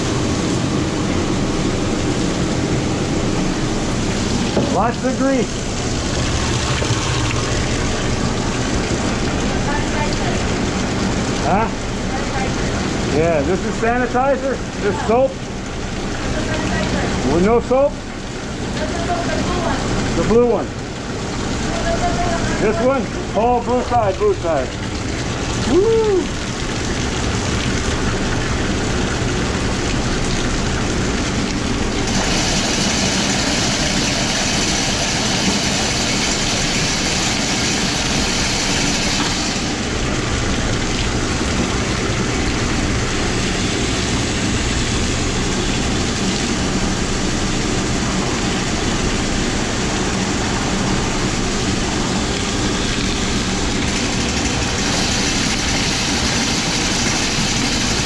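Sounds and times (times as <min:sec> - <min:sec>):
drain cleaning machine motor: 0:00.0 - 0:10.7, 0:26.4 - 0:58.0
water streaming into drain: 0:00.0 - 0:58.0.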